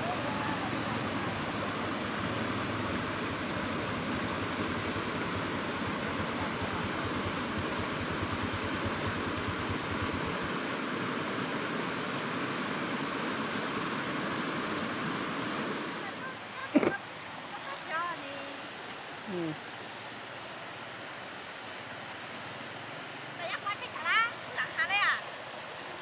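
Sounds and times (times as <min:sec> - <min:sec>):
river water rushing over stones: 0:00.0 - 0:26.0.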